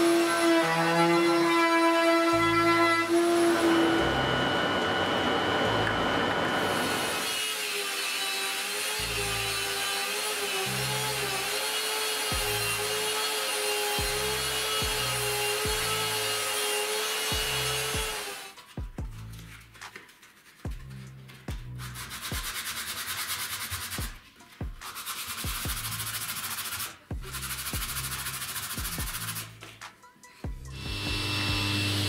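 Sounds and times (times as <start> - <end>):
router whining: 0.0 - 18.6, 30.7 - 32.0
belt sander humming: 2.5 - 18.5, 30.8 - 32.0
background music with bass beat: 12.3 - 12.6, 14.0 - 15.9, 17.3 - 18.1, 18.7 - 20.0, 20.6 - 22.8, 23.9 - 31.7.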